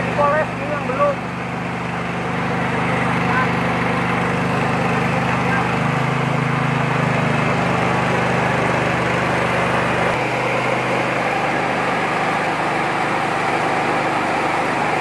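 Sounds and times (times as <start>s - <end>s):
rice huller mechanical hum: 0.0s - 15.0s
rushing grain: 0.9s - 15.0s.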